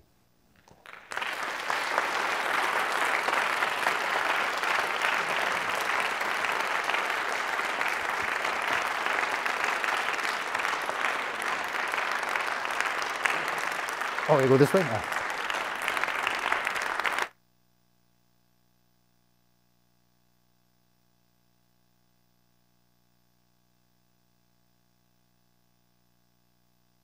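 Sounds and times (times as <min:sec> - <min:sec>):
audience applause: 0:00.7 - 0:17.3.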